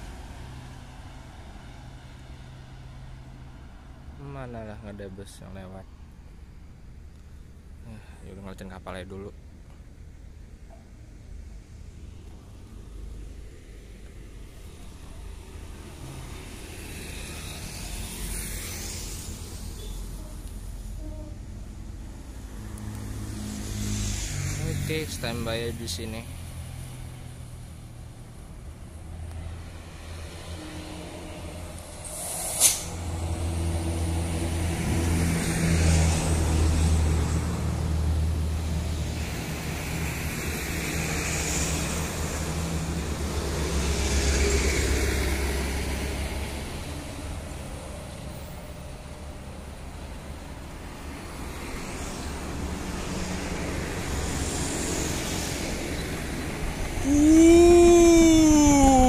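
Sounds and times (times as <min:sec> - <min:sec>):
road traffic passing: 0:00.0 - 0:59.0
locomotive horn: 0:19.8 - 0:21.5.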